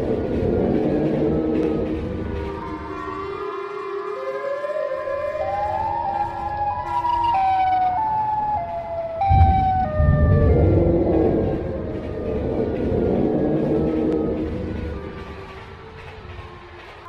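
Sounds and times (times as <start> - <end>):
siren wail stepping up and down: 4.4 - 14.5
deep low rumble: 9.2 - 15.4.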